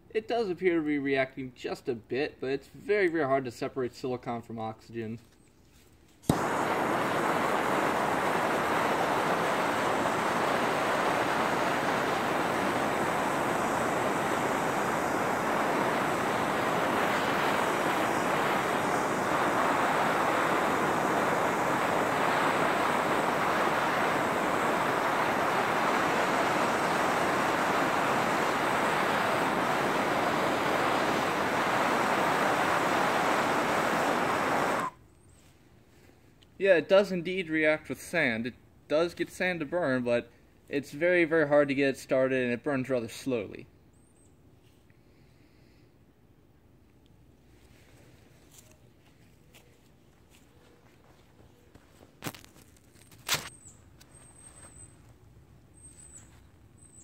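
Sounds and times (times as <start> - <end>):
propane torch hissing: 6.2 - 35.0.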